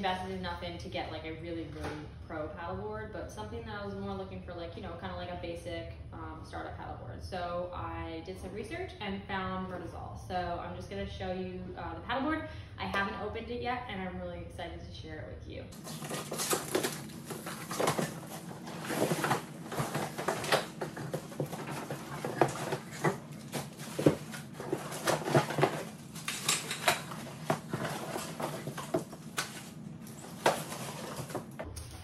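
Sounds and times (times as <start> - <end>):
cardboard and plastic packaging rustling: 15.8 - 31.7.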